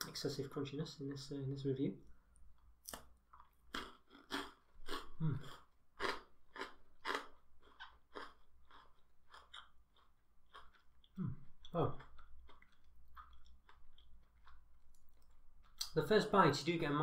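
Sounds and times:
chewing crisp honeycomb chocolate: 2.5s - 16.0s.

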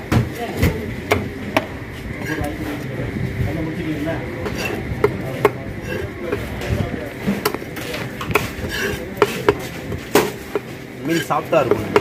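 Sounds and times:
knife chopping on wooden block: 11.7s - 12.0s.

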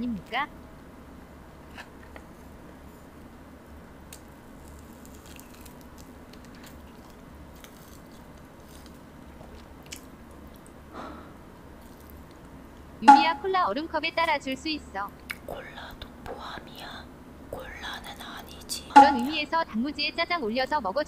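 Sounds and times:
low steady hum: 0.0s - 21.0s
faint chewing of noodles: 4.1s - 12.6s.

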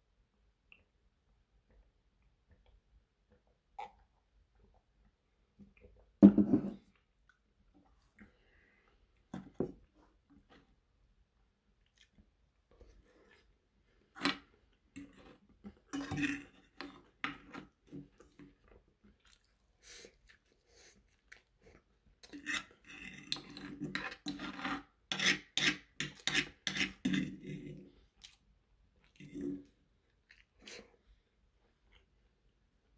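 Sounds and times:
cutlery scraping on frying pan: 22.4s - 27.6s.

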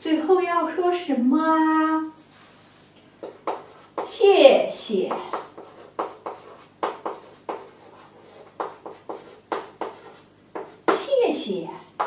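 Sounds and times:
chalk tapping and scratching: 2.4s - 4.3s, 5.0s - 11.2s.

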